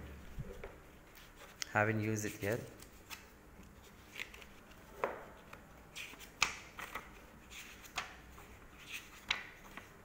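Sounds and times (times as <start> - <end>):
pages flipped by hand: 2.4 - 9.9.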